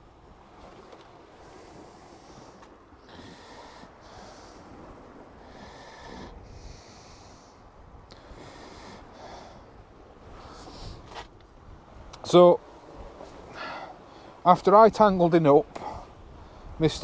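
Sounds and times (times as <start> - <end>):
wind rumble on microphone: 0.0 - 17.0
person breathing: 1.4 - 4.8, 5.4 - 9.8.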